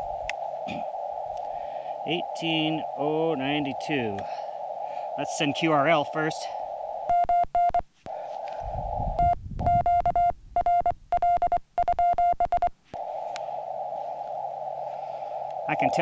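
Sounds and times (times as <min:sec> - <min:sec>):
low rumble: 0:00.0 - 0:07.8, 0:08.6 - 0:11.4
receiver hiss: 0:00.0 - 0:16.0
morse code beeps: 0:07.1 - 0:07.8, 0:09.2 - 0:12.7.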